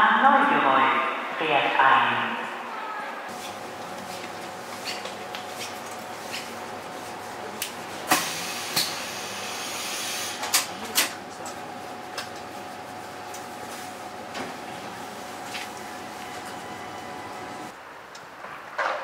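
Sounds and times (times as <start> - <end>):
train running noise: 3.3 - 19.0
light-rail train pulling in: 6.7 - 18.7.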